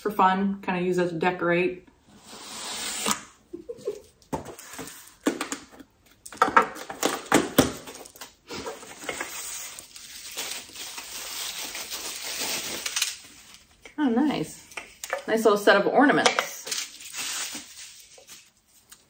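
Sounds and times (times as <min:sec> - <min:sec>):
packing paper rustling: 0:06.8 - 0:13.8, 0:16.6 - 0:19.0.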